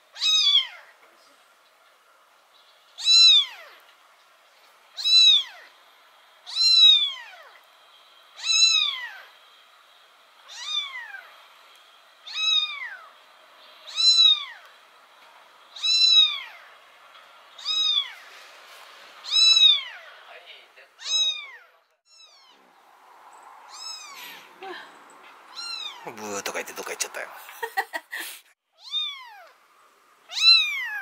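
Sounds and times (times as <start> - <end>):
kitten meowing: 0.2 - 0.9, 3.0 - 3.8, 5.0 - 5.7, 6.5 - 7.6, 8.4 - 9.3, 10.5 - 11.3, 12.2 - 13.1, 13.9 - 14.6, 15.8 - 16.7, 17.6 - 18.2, 19.2 - 20.1, 21.0 - 22.6, 23.7 - 24.5, 25.5 - 26.0, 28.8 - 29.6, 30.3 - 31.0.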